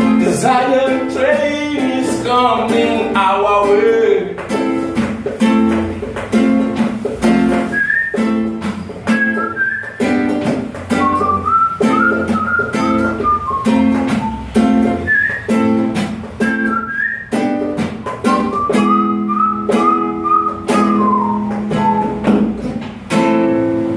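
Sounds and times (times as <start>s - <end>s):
acoustic guitar strumming: 0.0s - 23.9s
whistled melody: 7.6s - 22.7s.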